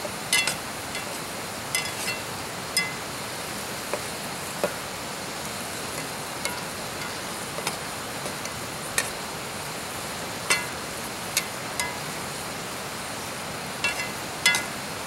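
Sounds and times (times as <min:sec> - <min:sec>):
gas burner hiss: 0:00.0 - 0:15.0
onions sizzling in a skillet: 0:00.0 - 0:15.0
metal spatula scraping pan: 0:01.8 - 0:03.0, 0:13.8 - 0:14.7.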